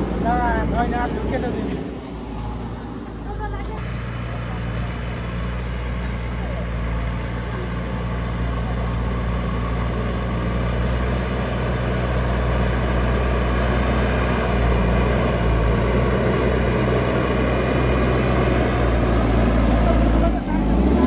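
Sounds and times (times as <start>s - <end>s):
engine running: 0.0s - 21.0s.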